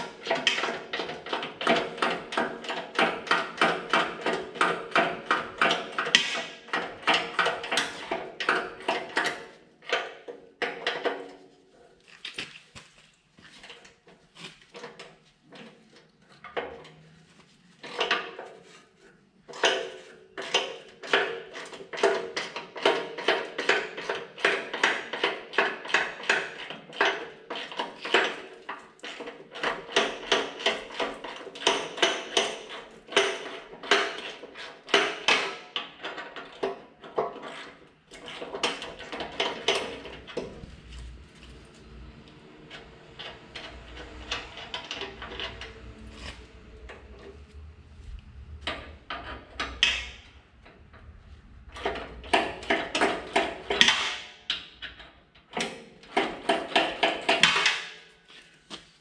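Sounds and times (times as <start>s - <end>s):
low rumble: 40.4s - 53.8s.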